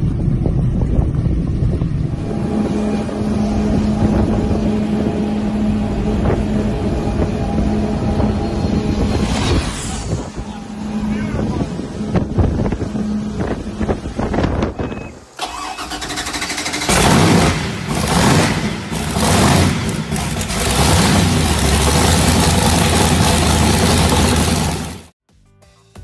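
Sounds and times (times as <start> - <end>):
wind on microphone: 0.0 - 15.4
speedboat running at speed: 1.7 - 8.8
boat engines revving and idling: 2.0 - 9.1, 10.5 - 25.1.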